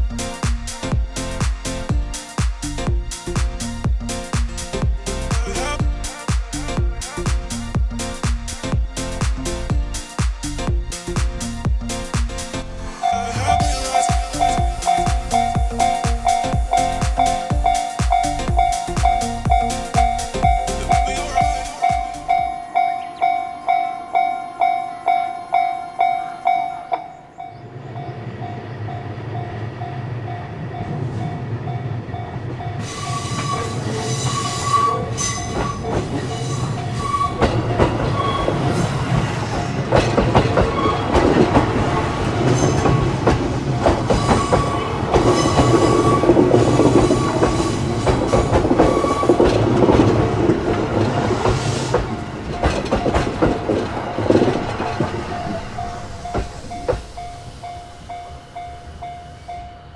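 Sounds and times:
electric train passing: 0:00.0 - 0:59.9
level-crossing warning bell: 0:13.0 - 0:39.0, 0:42.5 - 0:50.2, 0:51.7 - 0:59.9
wheels clattering over rail joints: 0:31.6 - 0:59.1.

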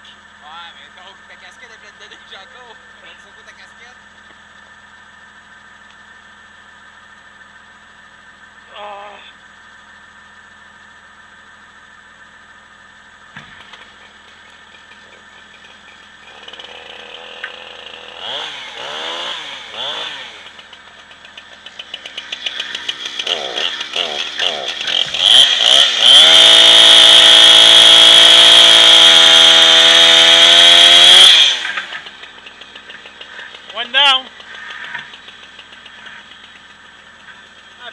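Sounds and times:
engine idling low: 0:00.0 - 0:28.4, 0:31.3 - 0:37.9
chainsaw revving and cutting: 0:16.2 - 0:36.6.

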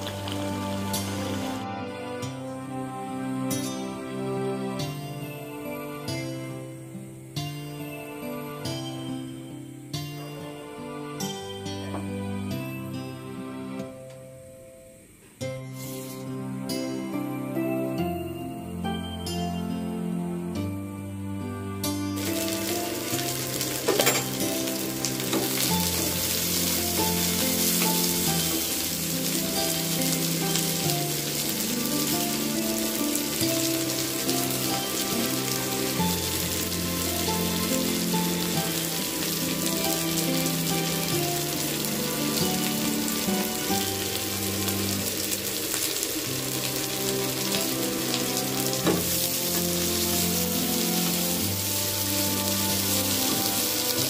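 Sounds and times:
onions sizzling in hot oil: 0:00.0 - 0:01.6, 0:15.6 - 0:17.1, 0:22.1 - 0:54.0
soft background music: 0:00.0 - 0:54.0.

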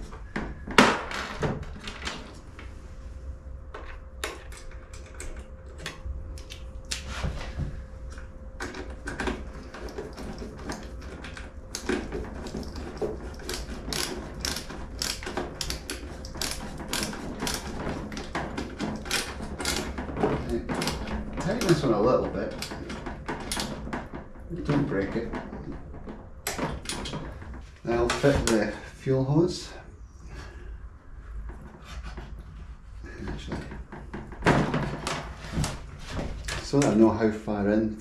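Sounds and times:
ratcheting hand driver clicking: 0:10.6 - 0:19.9.

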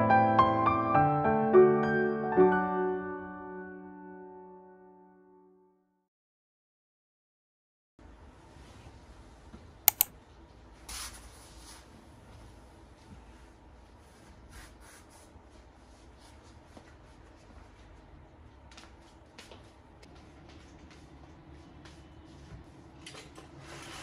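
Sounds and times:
light taps and ticks: 0:09.9 - 0:10.1
sharp clicks: 0:09.9 - 0:10.1.

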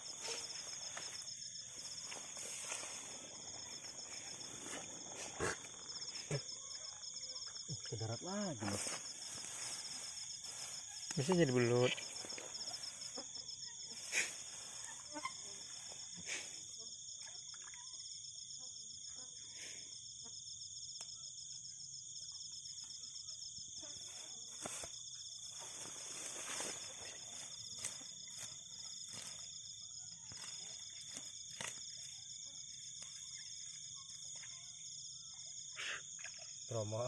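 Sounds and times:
night insects trilling: 0:00.0 - 0:37.0
grass rustling and snapping: 0:00.1 - 0:05.9, 0:24.5 - 0:24.9, 0:25.6 - 0:29.6, 0:30.3 - 0:32.1.

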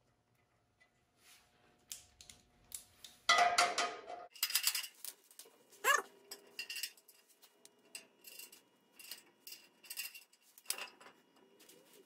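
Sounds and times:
metal bolts and nuts clinking: 0:06.3 - 0:11.2.

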